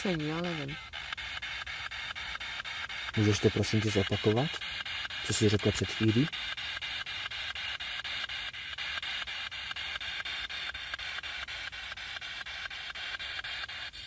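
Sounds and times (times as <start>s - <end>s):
radio static hiss: 0.0s - 14.0s.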